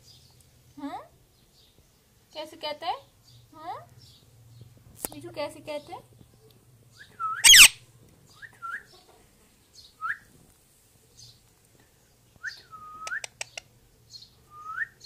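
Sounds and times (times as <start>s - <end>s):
parakeet whistled chirps: 7.2s - 7.8s
parakeet harsh screech: 7.4s - 7.8s.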